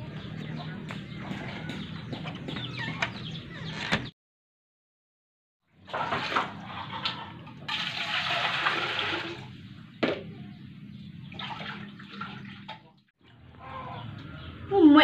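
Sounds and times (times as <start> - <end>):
water pouring into a pot: 7.7 - 9.5.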